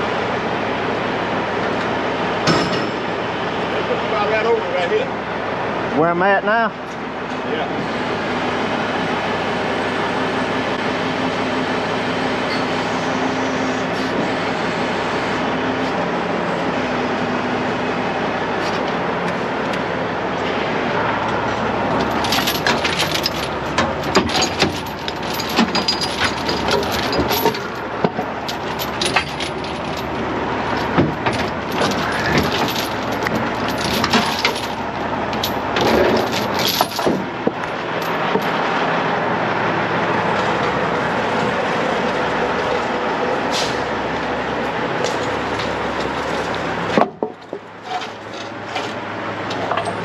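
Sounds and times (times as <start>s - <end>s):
diesel engine running: 0.0s - 50.0s
metallic clinks of rigging: 22.0s - 27.8s, 28.5s - 37.1s.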